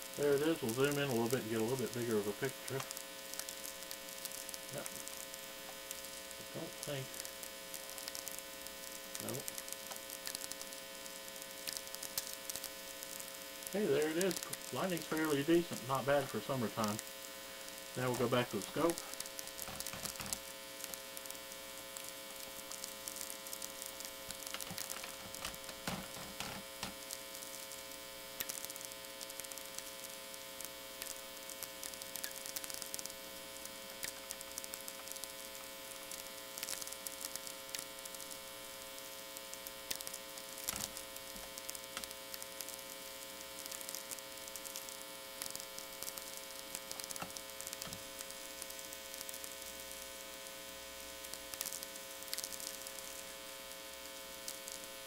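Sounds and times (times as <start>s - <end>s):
crackle of radio sferics: 0.0s - 55.0s
power-line hum buzz: 0.0s - 55.0s.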